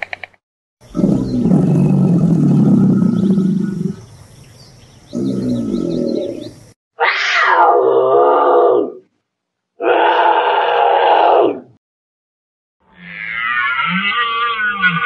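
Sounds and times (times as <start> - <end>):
caiman growling: 0.9 - 4.0, 5.1 - 6.5
lynx yowling cry: 7.0 - 9.0, 9.8 - 11.7.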